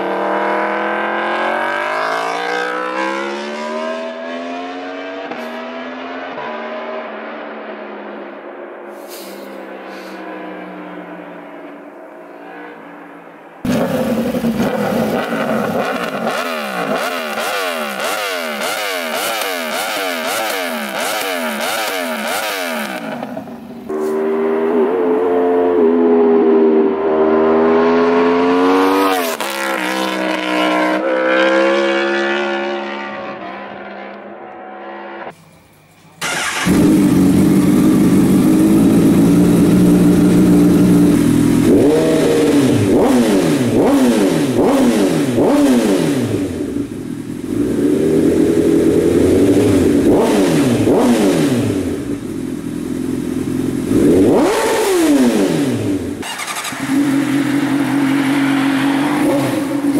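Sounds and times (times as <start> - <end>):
motorcycle engine idling and revving: 0.0 - 59.9
motorcycle engine passing: 13.6 - 35.4, 36.2 - 46.6, 53.9 - 59.9.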